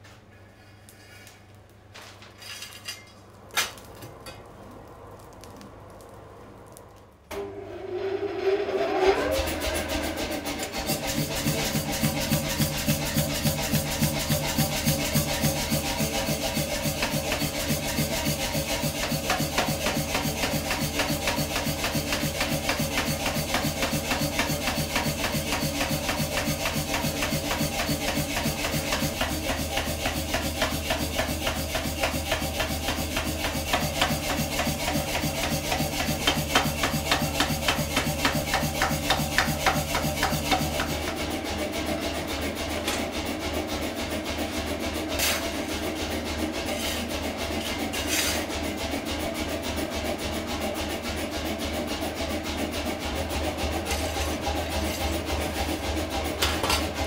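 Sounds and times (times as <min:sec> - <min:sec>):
coal forge rushing: 0:00.7 - 0:57.0
power hammer striking steel: 0:10.4 - 0:41.4.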